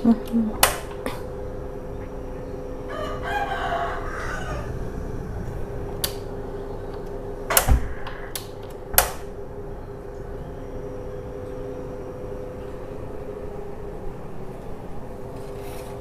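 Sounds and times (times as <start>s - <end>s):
steady low hum: 0.0s - 16.0s
rooster crowing: 2.8s - 5.4s.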